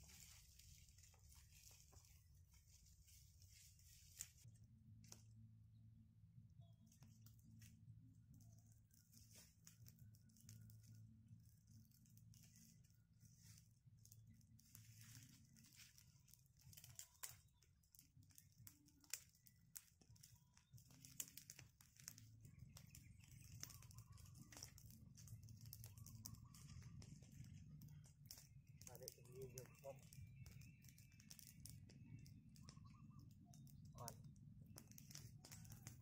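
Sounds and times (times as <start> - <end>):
dry leaves and twigs crackling: 0.0 - 5.4, 6.7 - 36.0
twigs snapping: 12.2 - 36.0.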